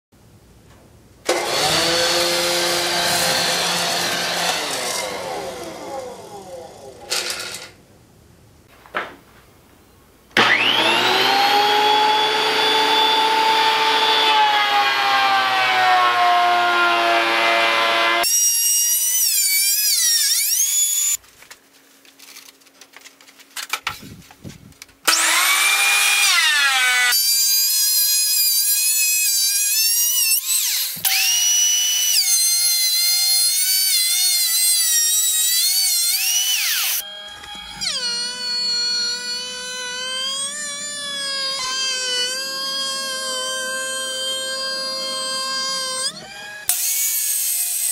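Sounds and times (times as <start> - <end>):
thickness planer motor whine: 1.3 - 7.6, 10.4 - 18.3, 25.1 - 29.2, 30.4 - 47.9.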